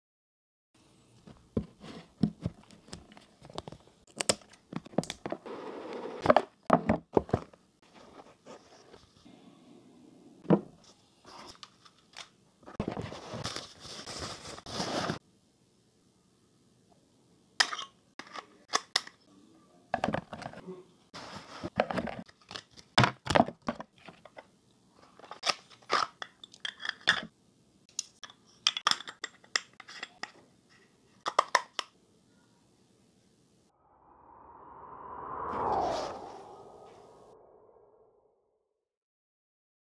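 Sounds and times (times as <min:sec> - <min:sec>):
cardboard and paper rustling: 0:11.3 - 0:15.2, 0:21.2 - 0:24.3.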